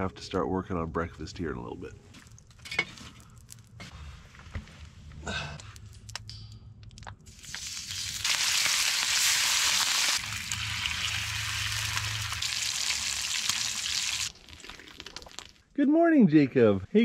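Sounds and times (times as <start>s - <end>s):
bacon sizzling in a skillet: 7.3s - 14.3s.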